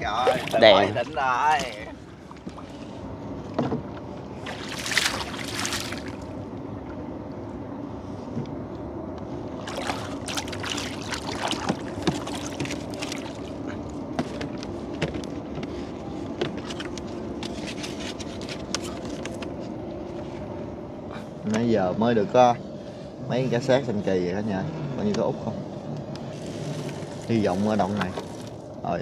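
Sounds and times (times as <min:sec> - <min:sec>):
water splashing against boat: 0:00.0 - 0:07.4, 0:09.4 - 0:19.7, 0:26.2 - 0:28.8
boat motor running: 0:00.0 - 0:29.0.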